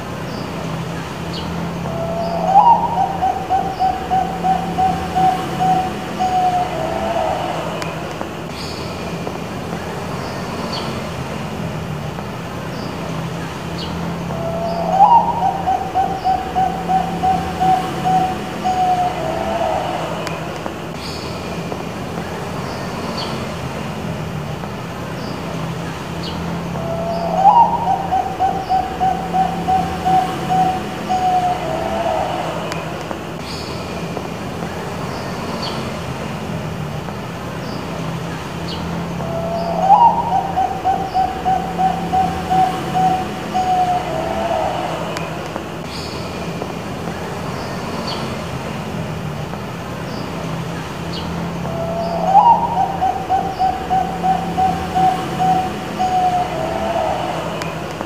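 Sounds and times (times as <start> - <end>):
dove cooing: 1.7 - 8.0, 14.2 - 20.2, 26.5 - 32.8, 39.0 - 45.0, 51.6 - 57.4.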